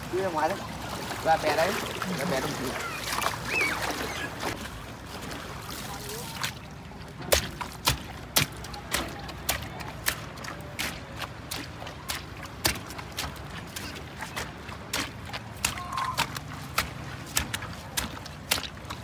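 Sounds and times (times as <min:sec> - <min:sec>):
water sloshing around legs: 0:00.0 - 0:19.0
wet footsteps slapping: 0:07.2 - 0:19.0.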